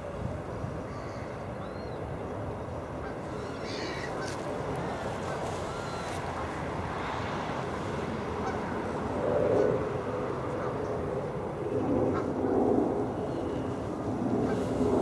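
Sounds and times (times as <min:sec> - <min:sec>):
steady background noise: 0:00.0 - 0:15.0
low honking bird calls: 0:03.0 - 0:06.4.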